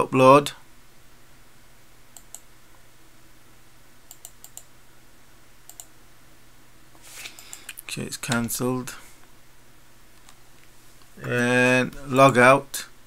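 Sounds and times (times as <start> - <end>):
faint room hiss: 0.0 - 13.0
computer mouse clicking: 2.2 - 2.5, 4.1 - 4.7, 5.7 - 5.9, 7.4 - 8.5.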